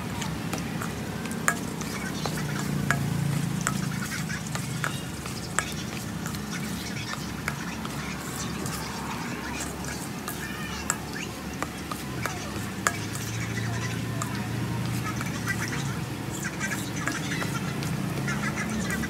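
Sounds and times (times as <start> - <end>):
spoon scraping metal bowl: 0.8 - 14.4.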